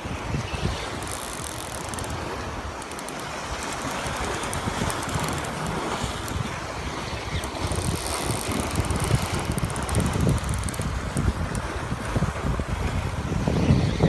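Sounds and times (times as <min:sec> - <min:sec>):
wind rumbling on microphone: 0:00.0 - 0:14.0
fishing reel clicking: 0:00.8 - 0:11.7.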